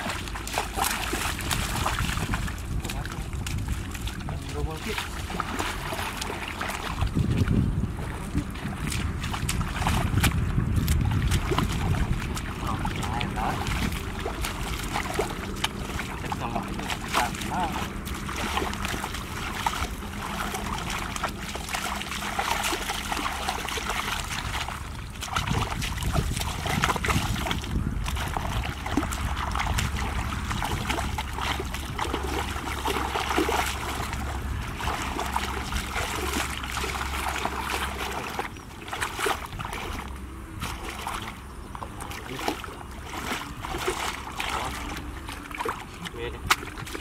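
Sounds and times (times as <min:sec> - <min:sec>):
low rumble: 0:00.0 - 0:46.1
muddy water splashing: 0:00.0 - 0:47.0.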